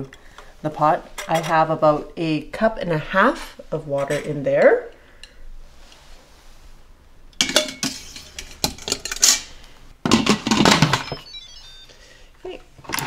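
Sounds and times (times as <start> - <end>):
metal clinking in steel pot: 7.4 - 9.4.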